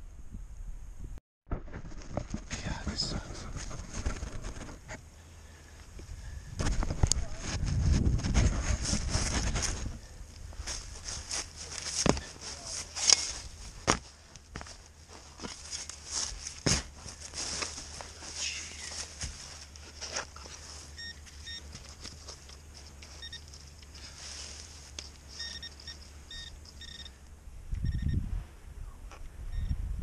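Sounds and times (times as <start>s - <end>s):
metal detector beeps: 20.8s - 21.8s, 23.1s - 23.6s, 25.3s - 28.2s, 29.5s - 29.8s.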